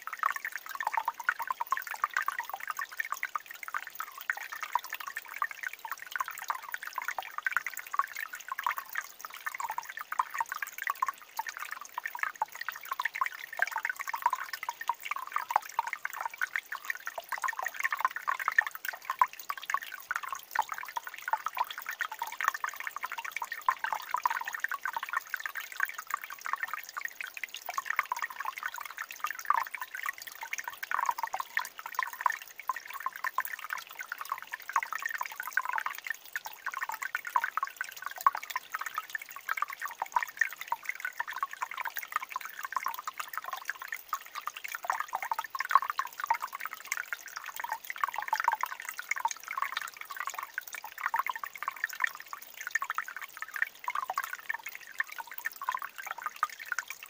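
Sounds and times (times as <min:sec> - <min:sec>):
water trickling into pool: 0:00.0 - 0:57.0.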